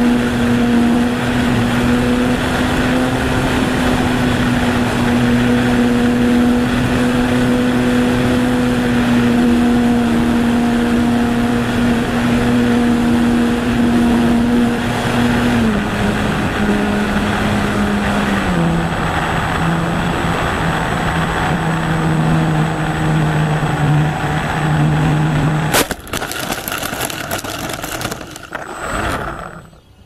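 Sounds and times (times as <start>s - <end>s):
model aircraft motor humming: 24.7s - 30.0s
crash knocks and scraping: 25.7s - 28.8s.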